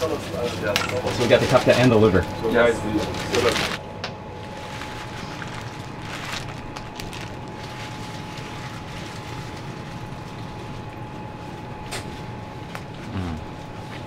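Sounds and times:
shop background noise: 0.0s - 10.0s
thin steady whine: 0.0s - 14.0s.

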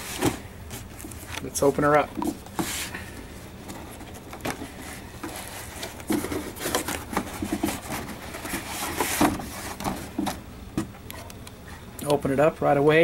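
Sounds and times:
cardboard box lid scraping: 3.7s - 10.3s.

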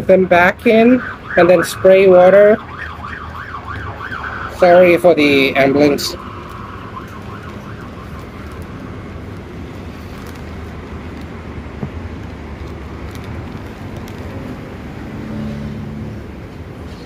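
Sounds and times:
road traffic noise: 0.0s - 17.0s
plastic bag crinkling: 6.2s - 15.0s.

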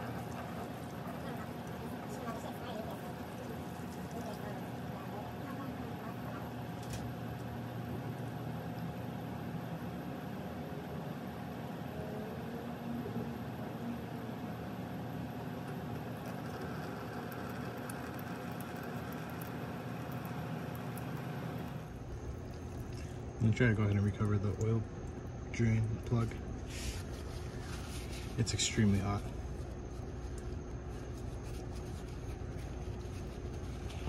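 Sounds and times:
low mechanical hum: 0.0s - 34.0s
oil draining into a pan: 15.8s - 25.3s.

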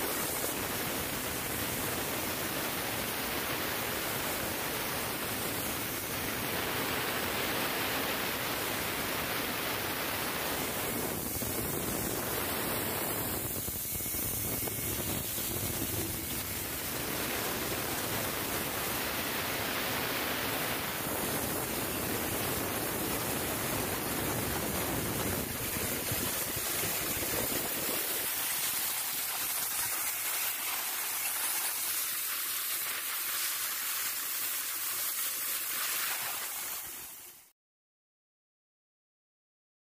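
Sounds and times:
machines hissing: 10.5s - 18.5s.

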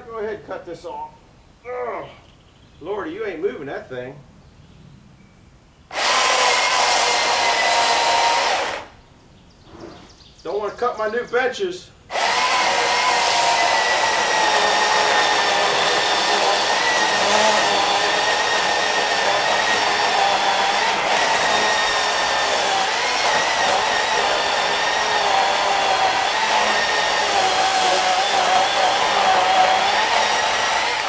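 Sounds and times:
electric chainsaw cutting wood: 5.9s - 9.0s, 12.1s - 31.0s.

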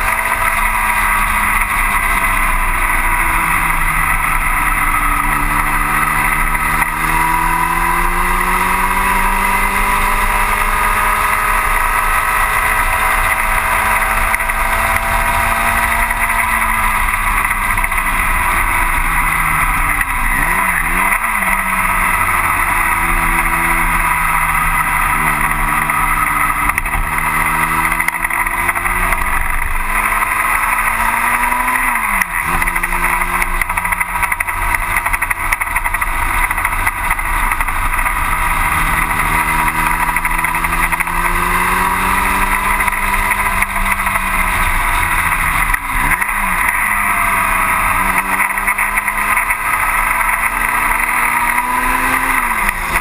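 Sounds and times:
racing car engine: 0.0s - 53.0s.

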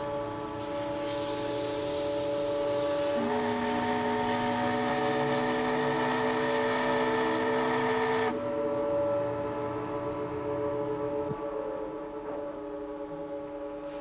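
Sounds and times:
steam whistle blowing: 0.0s - 10.3s.

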